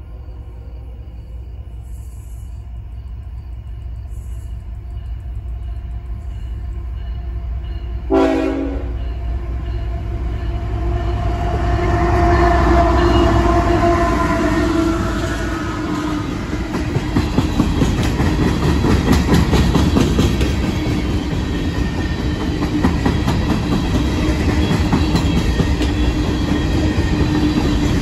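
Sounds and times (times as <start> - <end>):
diesel locomotive rumble: 0.0 - 28.0
train wheels: 1.8 - 28.0
train horn blast: 8.0 - 9.2, 10.6 - 16.4.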